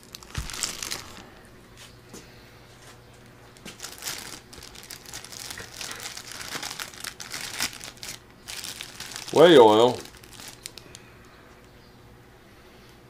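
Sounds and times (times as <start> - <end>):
plastic wrapping crinkling: 0.0 - 1.9, 3.2 - 11.2.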